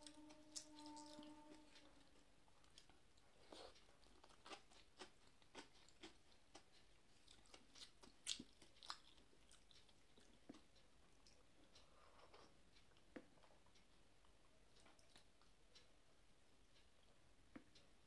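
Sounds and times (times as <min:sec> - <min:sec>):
chewing: 0:00.0 - 0:15.9.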